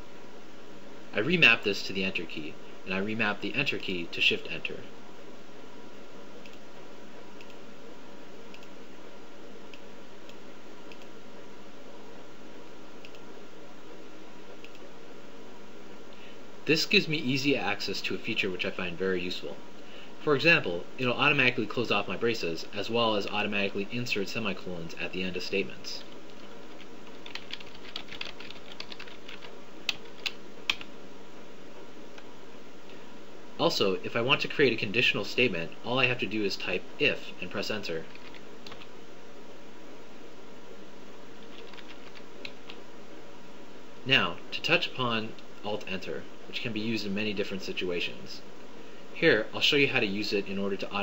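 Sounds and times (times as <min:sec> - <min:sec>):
steady hiss: 0:00.0 - 0:51.0
computer mouse clicks: 0:07.4 - 0:07.6
keyboard typing: 0:26.0 - 0:30.9, 0:38.1 - 0:38.9, 0:41.4 - 0:42.8.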